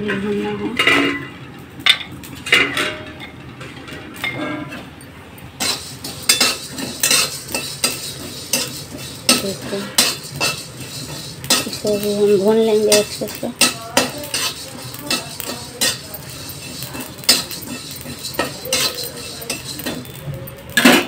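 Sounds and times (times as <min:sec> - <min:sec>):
metal stirrer scraping metal pan: 0:05.6 - 0:21.0.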